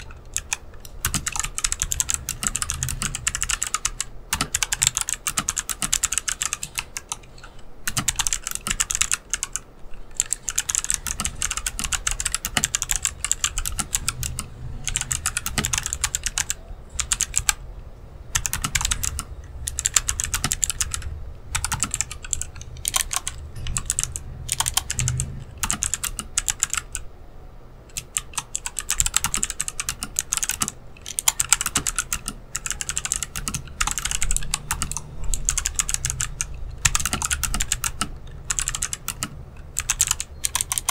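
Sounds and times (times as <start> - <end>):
fast typing on clicky keyboard: 0.0 - 17.6, 18.3 - 27.1, 27.9 - 40.9.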